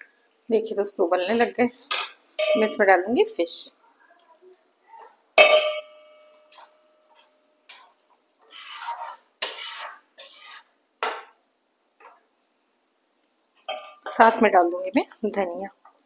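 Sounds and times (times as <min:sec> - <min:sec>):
metal spatula clanking on pans: 0:01.9 - 0:02.8, 0:05.4 - 0:08.0, 0:08.7 - 0:11.3, 0:13.7 - 0:14.5
short scrapes and knocks: 0:07.2 - 0:10.7.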